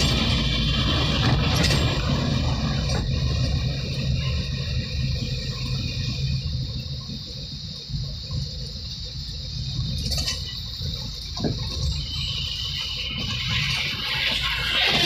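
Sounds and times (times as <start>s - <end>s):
car engine rumble: 0.0s - 15.0s
tyres hissing on road: 0.0s - 15.0s.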